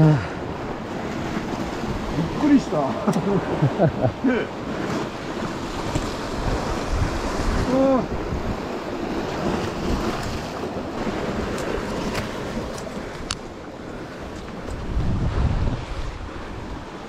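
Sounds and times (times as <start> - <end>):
surf washing against rocks: 0.0 - 17.0
wind on microphone: 4.6 - 17.0.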